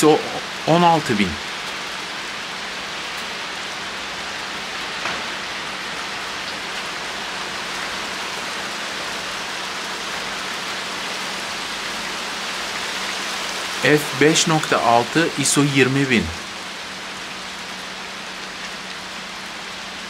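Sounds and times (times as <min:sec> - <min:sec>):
steady rain falling: 0:00.0 - 0:20.0.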